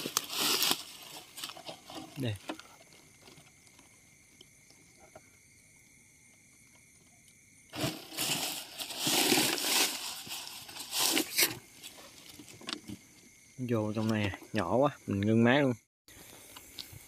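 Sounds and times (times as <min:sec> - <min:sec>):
rustling and crunching of leaves: 0:00.0 - 0:04.0, 0:07.7 - 0:13.0.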